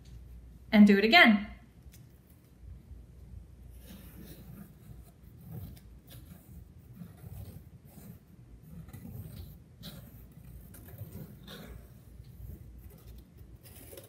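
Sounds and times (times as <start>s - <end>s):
pencil scratching on paper: 3.6s - 14.0s.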